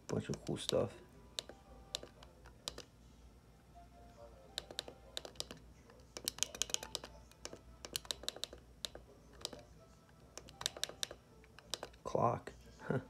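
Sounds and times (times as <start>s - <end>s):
buttons clicking: 0.0s - 2.9s, 4.5s - 9.7s, 10.3s - 12.0s.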